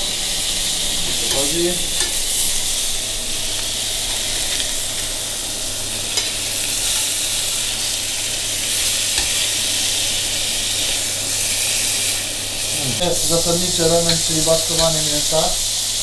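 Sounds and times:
steaks sizzling in a frying pan: 0.0s - 16.0s
metal tongs clicking on pan: 14.0s - 15.1s.

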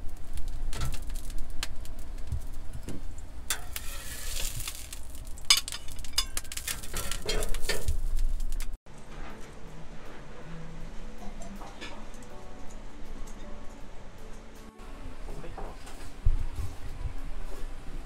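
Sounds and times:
metal utensils clinking and scraping: 3.5s - 8.2s
dumplings sizzling in a pan: 3.5s - 8.7s.

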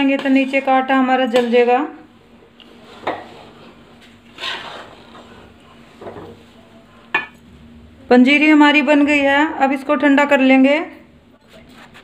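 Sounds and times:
metal spatula scraping pan: 2.8s - 6.3s.

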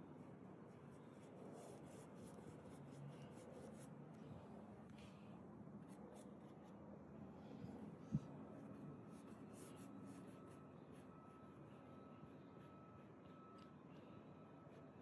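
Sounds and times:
paintbrush scratching on canvas: 0.6s - 3.9s, 8.7s - 13.2s.

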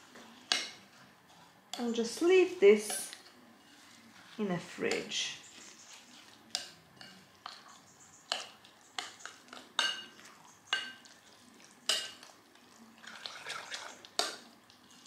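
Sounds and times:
spoon clinking against glass bowl: 8.2s - 11.1s.

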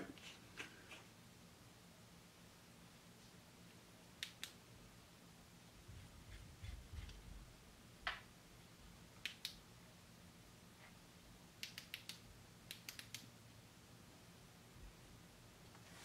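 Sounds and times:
laser pointer clicks: 4.2s - 4.6s, 9.2s - 9.6s, 11.6s - 13.3s.

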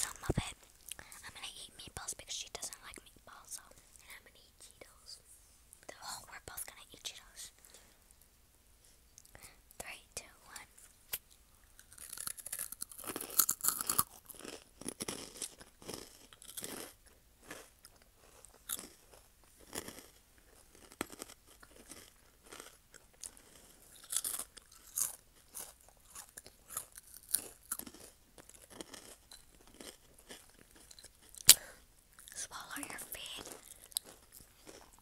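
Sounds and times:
crunchy snacks being chewed: 11.1s - 35.0s.

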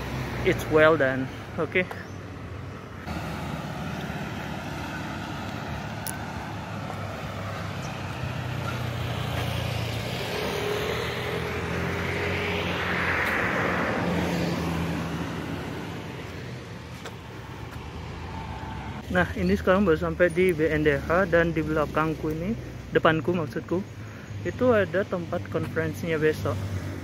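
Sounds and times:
vehicle passing close: 0.0s - 1.4s, 3.0s - 19.2s
traffic engines humming: 0.0s - 27.0s.

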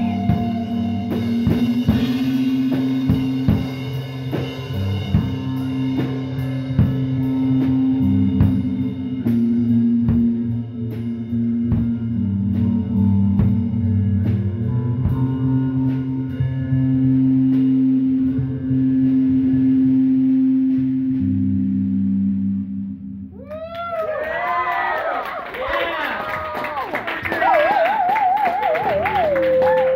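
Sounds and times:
drum kit: 0.0s - 22.6s, 26.3s - 29.9s
electric guitars droning chords: 0.0s - 23.4s.

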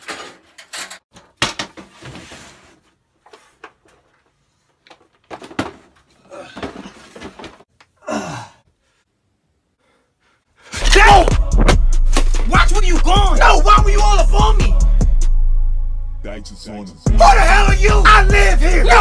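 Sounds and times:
rustling and scraping: 0.0s - 7.7s.

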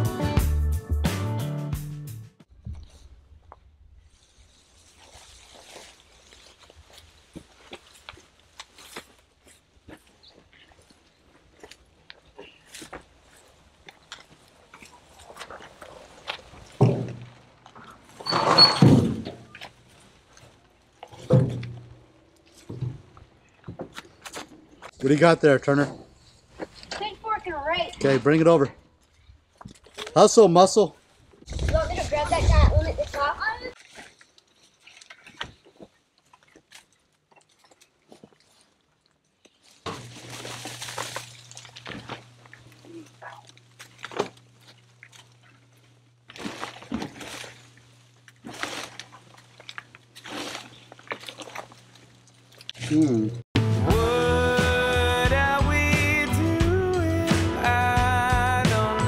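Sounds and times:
branches thunking into bucket: 12.4s - 24.9s, 39.4s - 53.0s
faint twig crackles: 33.0s - 53.2s
crash of rustling leaves: 39.7s - 42.2s.

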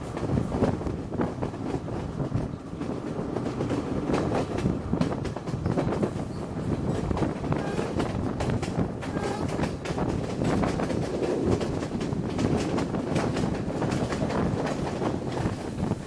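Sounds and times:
train running along track: 0.0s - 16.0s
wind on microphone: 0.0s - 16.0s.

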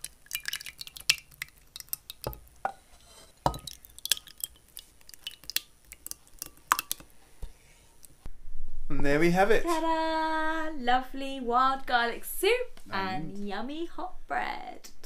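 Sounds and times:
thick soup pouring: 0.0s - 8.1s.

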